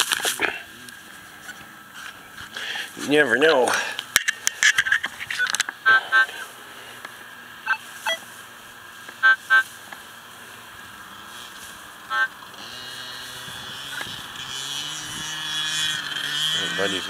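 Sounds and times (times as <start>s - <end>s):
small gas engine revving: 0.0s - 4.5s, 5.9s - 17.0s
metal detector beeps: 5.3s - 6.5s, 7.6s - 8.3s, 9.2s - 9.7s, 12.1s - 12.4s.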